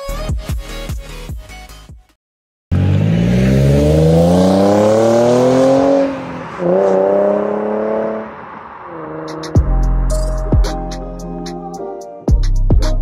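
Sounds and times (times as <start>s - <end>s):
car engine accelerating: 2.7s - 10.9s
electronic music: 9.3s - 13.0s.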